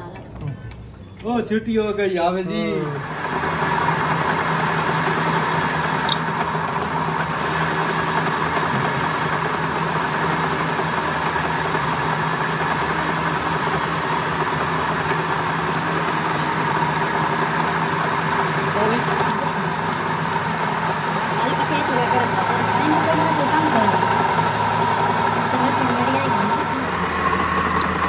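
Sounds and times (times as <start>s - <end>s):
metal lathe humming: 2.6s - 28.0s
drill boring into metal bar: 2.8s - 28.0s.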